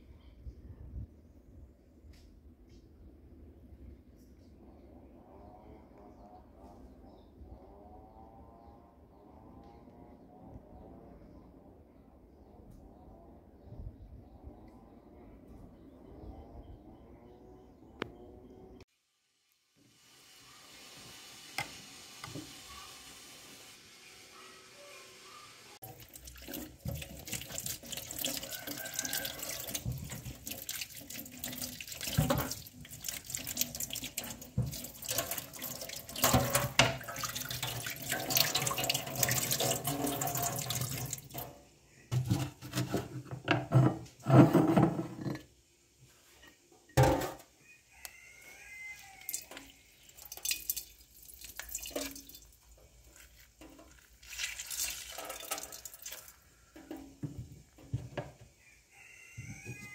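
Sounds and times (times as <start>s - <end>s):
tap water running into sink: 25.8s - 41.5s, 49.3s - 52.5s, 53.6s - 58.3s.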